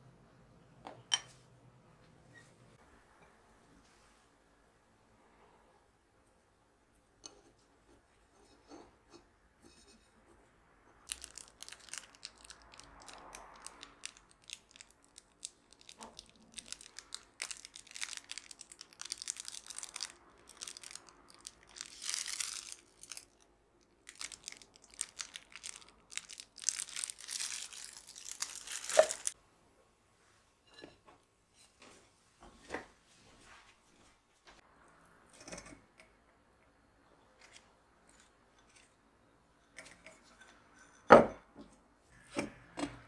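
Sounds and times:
plastic piping bag crinkling: 11.0 - 29.4.

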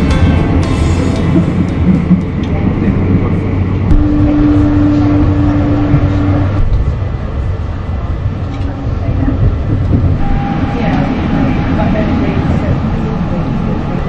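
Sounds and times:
train wheels rumbling on track: 0.0 - 14.0
steady hum: 3.9 - 6.6.

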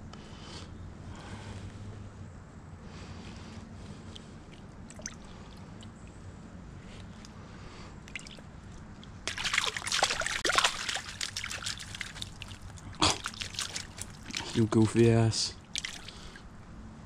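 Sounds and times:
fish thrashing in water: 4.5 - 6.0, 8.0 - 14.9, 15.6 - 16.5
stream murmur: 8.1 - 16.5.

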